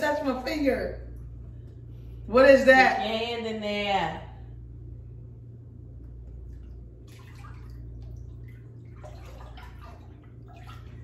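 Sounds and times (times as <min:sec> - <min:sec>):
steady low hum: 0:00.0 - 0:11.0
water splashing in tank: 0:06.4 - 0:11.0.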